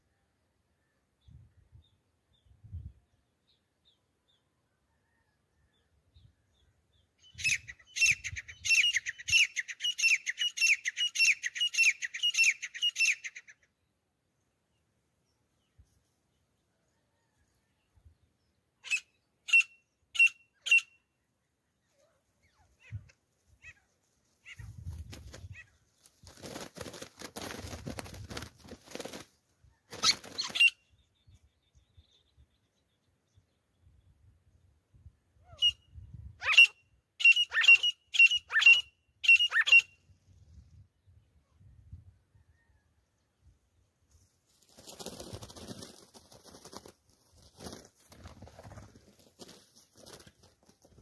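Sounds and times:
rustling in dry grass: 0:44.1 - 0:51.0.

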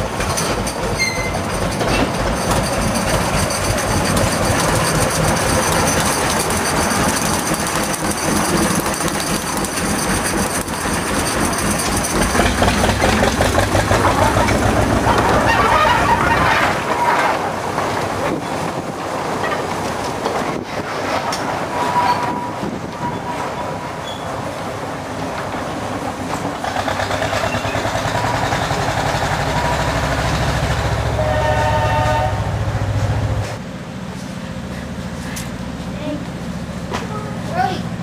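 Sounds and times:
steam locomotive running: 0:00.0 - 0:38.0
steam whistle blast: 0:31.1 - 0:32.6.

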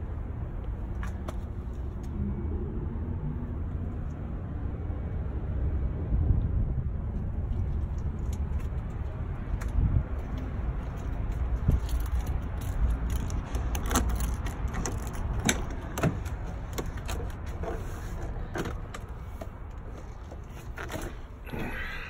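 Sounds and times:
low rumble: 0:01.5 - 0:13.5.

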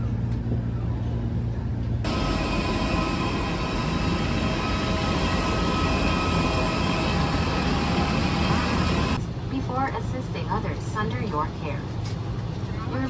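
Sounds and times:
airliner engine rush: 0:00.0 - 0:13.0
high whining tones: 0:02.1 - 0:09.2.

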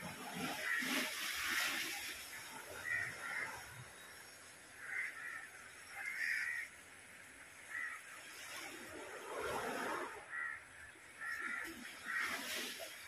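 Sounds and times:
water splashing: 0:00.0 - 0:13.0
crow cawing: 0:04.8 - 0:06.7, 0:10.3 - 0:10.6.

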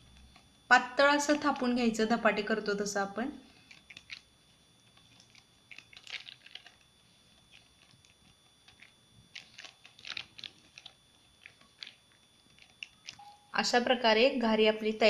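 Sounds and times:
plastic sheet crinkling: 0:03.5 - 0:13.2.

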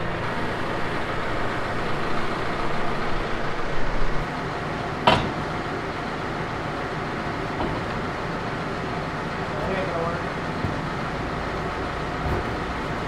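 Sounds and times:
tractor engine idling: 0:00.0 - 0:13.0
sharp metal clank: 0:05.0 - 0:05.4.

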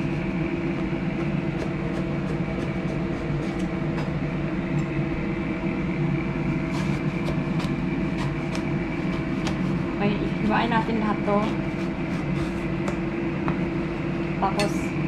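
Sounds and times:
machine hum: 0:00.0 - 0:15.0
knife slicing on cutting board: 0:06.6 - 0:09.8, 0:11.4 - 0:12.8.

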